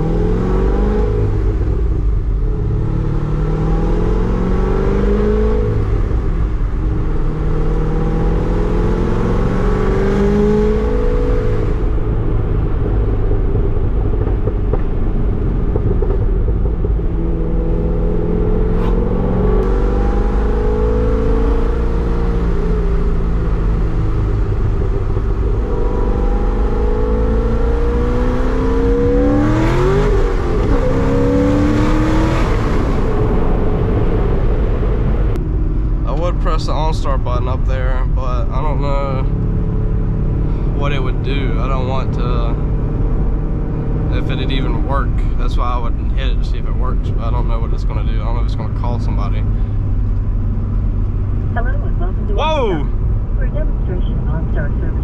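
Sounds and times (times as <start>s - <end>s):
car engine accelerating: 0.0s - 55.0s
road rumble: 0.0s - 55.0s.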